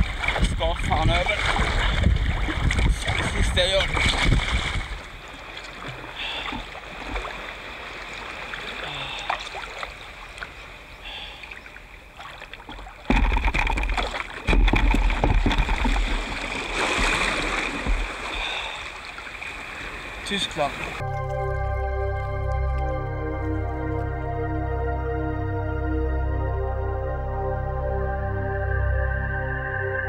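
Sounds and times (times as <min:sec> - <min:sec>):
paddle strokes splashing: 0:00.0 - 0:21.0
water sloshing around hull: 0:00.0 - 0:21.0.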